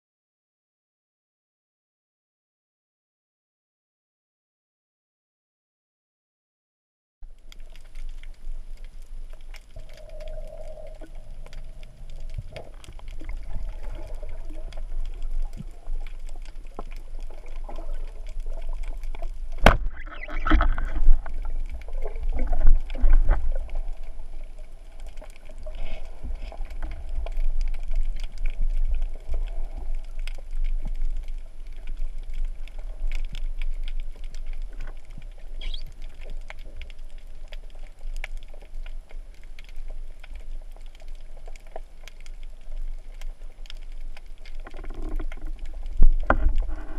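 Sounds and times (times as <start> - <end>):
small clicks and crackles: 7.2 - 46.9
underwater rumble of moving water: 7.2 - 46.9.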